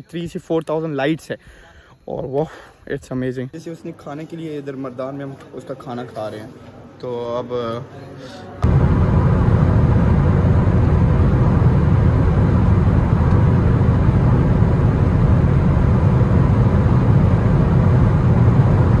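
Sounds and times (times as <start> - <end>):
road and engine noise in car: 8.6 - 19.0.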